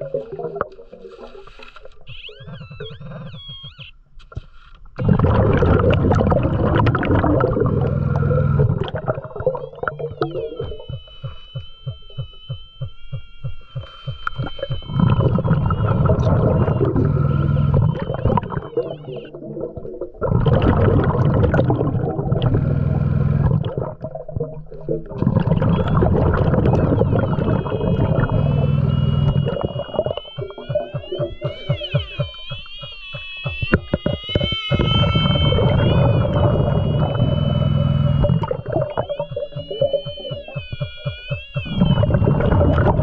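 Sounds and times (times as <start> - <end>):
exhaled bubbles rumbling underwater: 0.0 - 3.8, 5.0 - 11.1, 14.2 - 32.3, 33.5 - 43.0
faint steady whistle: 9.3 - 19.3, 25.7 - 43.0
in-breaths through a regulator: 24.7 - 30.2.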